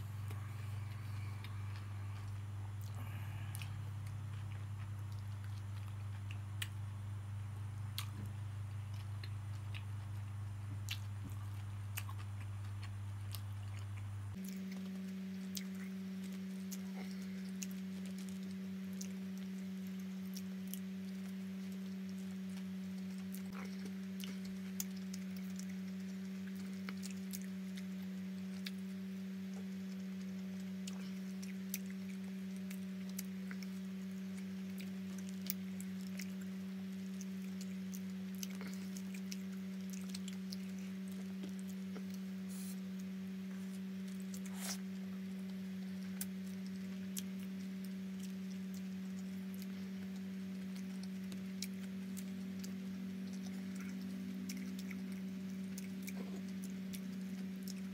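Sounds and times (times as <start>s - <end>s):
steady hum: 0.0s - 57.9s
chewing smacks: 7.8s - 57.9s.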